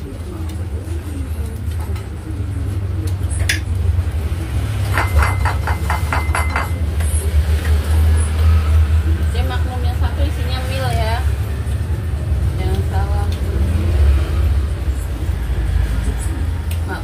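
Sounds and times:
plates and tableware clinking: 4.9 - 7.1.

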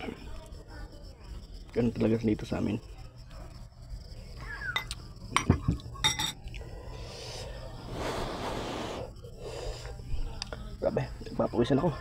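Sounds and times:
metal spoon clinking dishes: 4.8 - 6.6.

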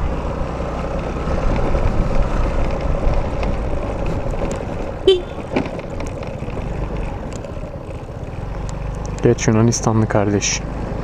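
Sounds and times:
road rumble: 0.0 - 11.0
scooter engine running: 0.0 - 11.0
vehicle horn toot: 5.0 - 5.6.

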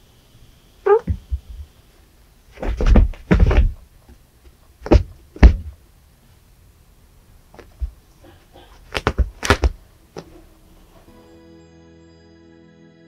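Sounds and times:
cat paws thumping on carpet: 0.9 - 1.7, 2.5 - 5.8, 7.5 - 8.0, 8.7 - 10.3
sharp knocks of paws: 2.5 - 5.8, 7.5 - 10.4.

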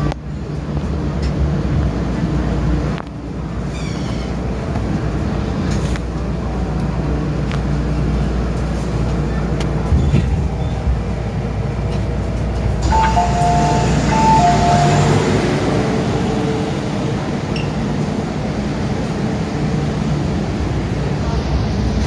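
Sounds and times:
train humming: 0.0 - 22.0
two-note electronic door chime: 12.8 - 15.2.

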